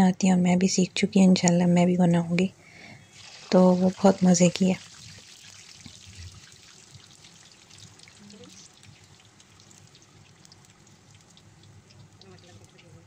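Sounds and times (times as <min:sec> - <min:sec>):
food deep-frying in hot oil: 0:03.1 - 0:13.0.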